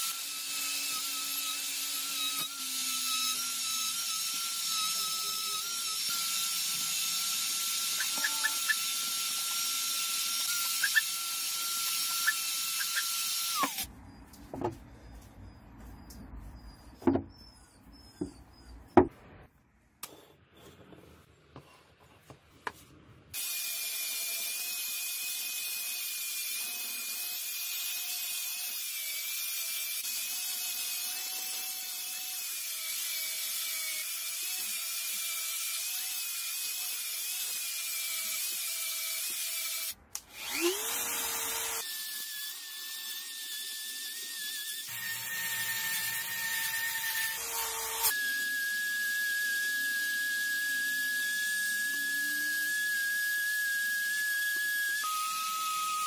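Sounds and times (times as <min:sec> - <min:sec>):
power tool motor whine: 0:00.0 - 0:13.9, 0:36.7 - 0:56.0.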